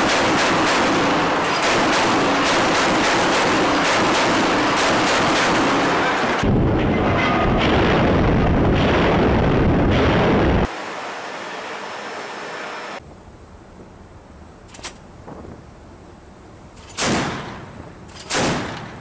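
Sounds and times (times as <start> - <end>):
steady background noise: 0.0 - 19.0
loud low rushing noise: 2.2 - 11.0
deck gun firing single shots: 16.9 - 17.6, 18.2 - 19.0.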